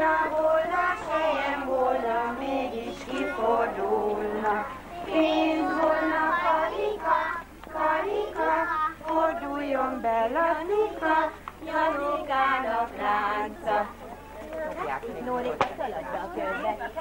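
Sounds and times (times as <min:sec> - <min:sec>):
woman singing: 0:00.0 - 0:07.1, 0:07.7 - 0:14.0
small children singing: 0:00.0 - 0:14.8.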